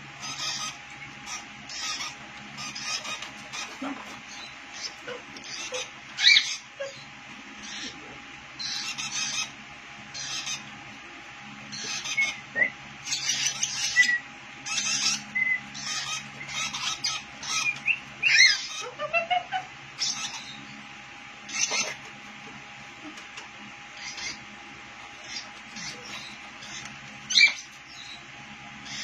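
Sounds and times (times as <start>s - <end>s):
lovebirds chirping shrilly: 0.1s - 8.0s, 8.6s - 10.8s, 11.7s - 19.0s, 19.9s - 22.1s, 23.9s - 24.5s, 25.1s - 29.0s.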